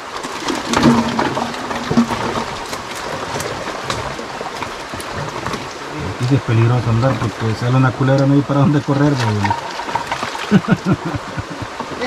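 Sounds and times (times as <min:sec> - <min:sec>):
creek water splashing: 0:00.0 - 0:12.0
knocks and scrapes: 0:00.1 - 0:07.6.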